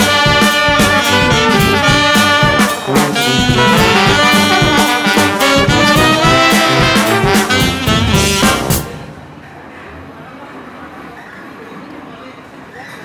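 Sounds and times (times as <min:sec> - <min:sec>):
upbeat jazzy brass music: 0:00.0 - 0:09.2.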